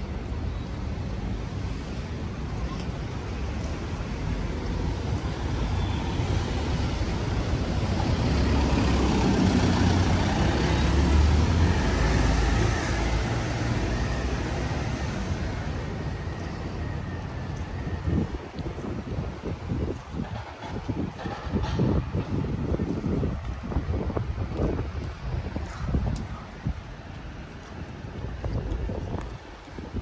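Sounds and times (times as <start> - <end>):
heavy vehicle passing: 6.1 - 16.0.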